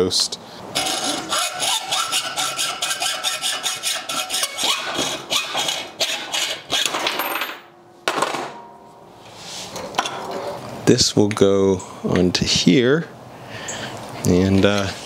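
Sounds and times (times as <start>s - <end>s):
faint metallic ringing: 8.5s - 9.4s.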